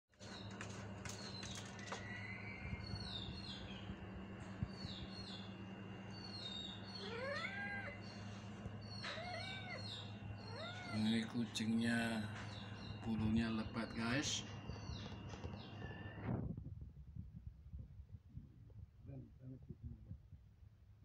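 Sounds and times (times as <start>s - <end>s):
low hum: 0.5s - 21.0s
cat meowing: 7.0s - 8.2s, 8.9s - 11.1s.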